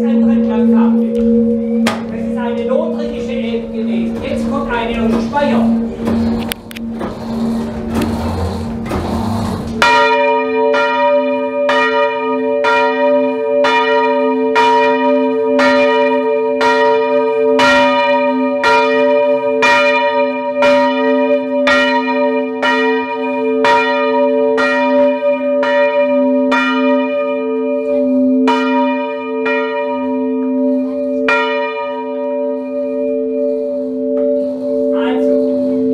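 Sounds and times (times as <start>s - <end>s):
church bell ringing: 0.0s - 7.6s, 9.8s - 35.9s.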